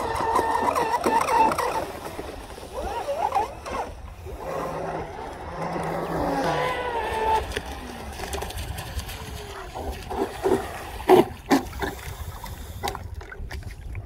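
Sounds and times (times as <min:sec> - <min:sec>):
water splashes: 0:00.0 - 0:14.0
wind rumble on microphone: 0:00.0 - 0:14.0
electric motor whining: 0:02.7 - 0:08.1.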